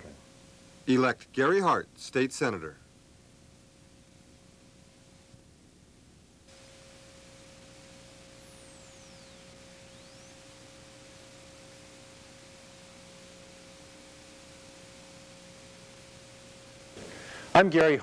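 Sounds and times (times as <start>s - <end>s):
tape hiss: 0.0s - 18.0s
faint high gliding whistle: 8.1s - 11.5s.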